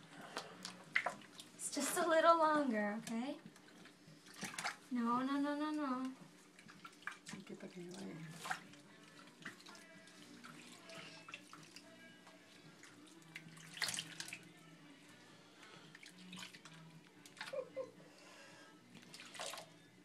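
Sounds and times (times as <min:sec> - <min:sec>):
water sloshing in a sink: 0:00.3 - 0:02.2, 0:03.0 - 0:05.0, 0:05.6 - 0:14.5, 0:15.8 - 0:17.7, 0:18.9 - 0:19.7.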